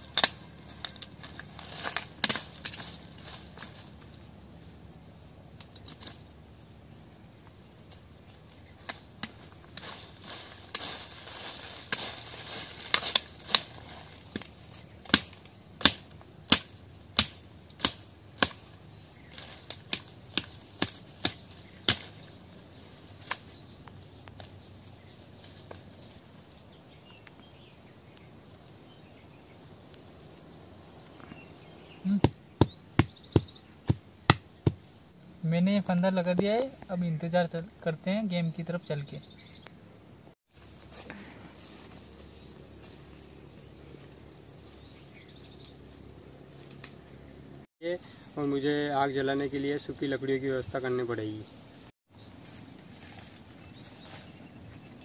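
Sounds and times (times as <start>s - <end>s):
twigs snapping: 0.0s - 4.2s, 5.5s - 6.4s, 7.8s - 26.6s, 46.6s - 47.2s
dry leaves rustling: 0.0s - 29.5s, 40.5s - 47.7s, 51.2s - 55.0s.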